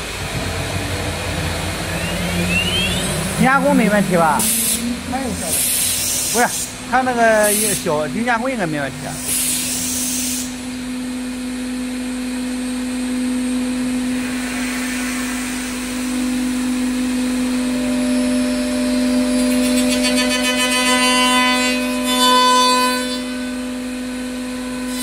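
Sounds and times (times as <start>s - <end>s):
router spindle whining: 0.0s - 21.0s
harsh high cutting tones: 0.5s - 9.3s.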